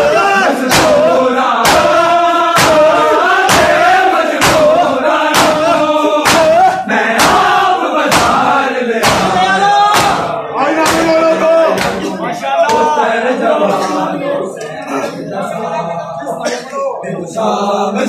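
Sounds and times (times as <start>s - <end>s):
man chanting a lament: 0.0s - 18.0s
men slapping their chests: 0.6s - 12.9s.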